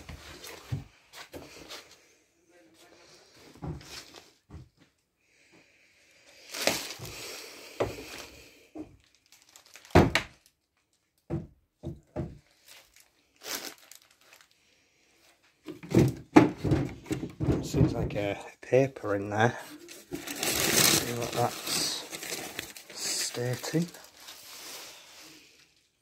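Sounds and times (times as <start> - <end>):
wooden furniture knocks and thunks: 10.0 - 10.3, 11.3 - 12.4, 15.7 - 18.3
cupboard doors and drawers bumping: 11.3 - 12.4, 15.7 - 18.2
rustling: 19.6 - 25.2.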